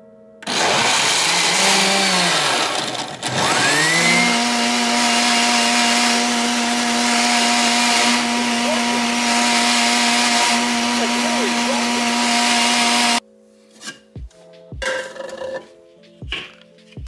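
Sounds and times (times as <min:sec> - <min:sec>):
blender motor running: 0:00.4 - 0:13.2.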